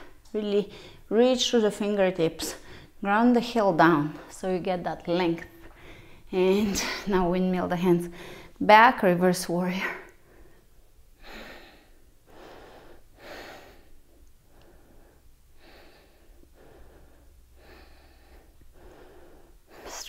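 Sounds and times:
woman breathing: 0.0s - 1.1s, 2.5s - 3.0s, 5.6s - 7.2s, 8.0s - 8.6s, 10.1s - 20.0s.

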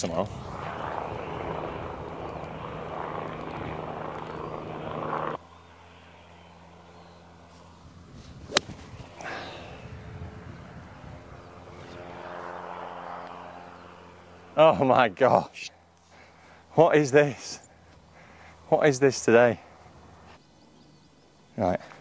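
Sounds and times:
steady rushing drone: 0.0s - 14.6s
golf club striking ball: 8.5s - 8.8s.

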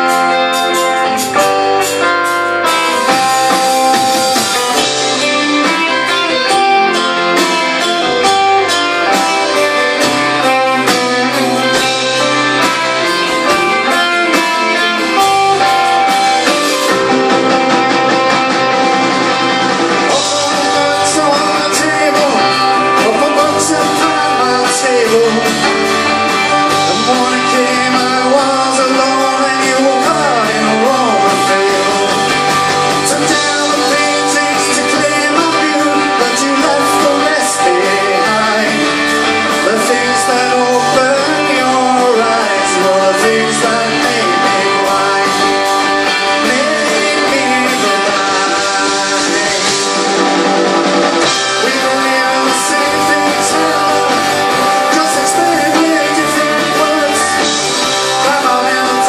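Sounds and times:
rock band playing live: 0.0s - 59.0s
person singing: 19.4s - 50.5s, 51.2s - 59.0s.

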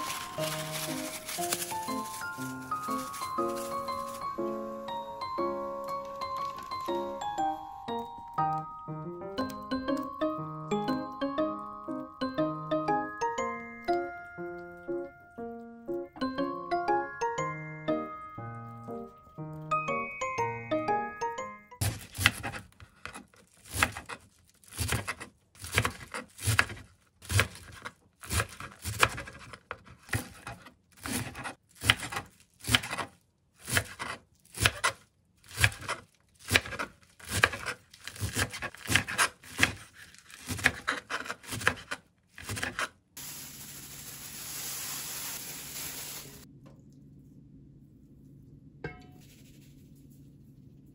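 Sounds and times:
knife chopping on plastic board: 21.8s - 42.9s.

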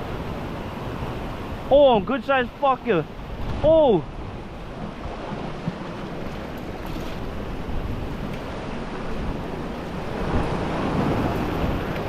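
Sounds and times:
ocean surf washing on rocks: 0.0s - 12.0s.

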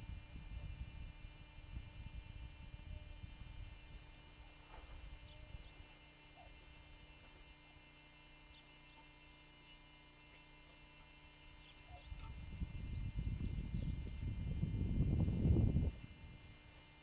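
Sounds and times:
faint electrical hum: 0.0s - 17.0s
high bird chirps: 4.9s - 6.5s, 8.1s - 9.9s, 11.2s - 14.1s.

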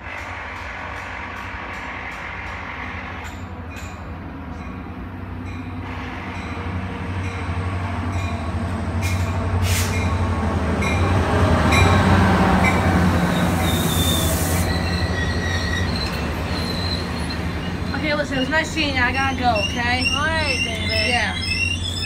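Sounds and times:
locomotive engine rumbling: 0.0s - 22.0s
high-pitched squeal and hiss: 13.6s - 18.0s.

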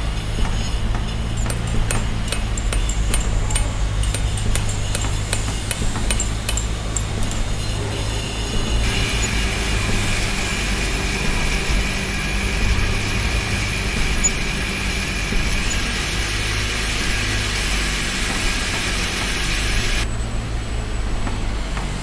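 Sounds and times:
machine running with high whine: 0.0s - 22.0s
steady low hum: 0.0s - 22.0s
hammer tapping stone setts: 0.4s - 7.8s.

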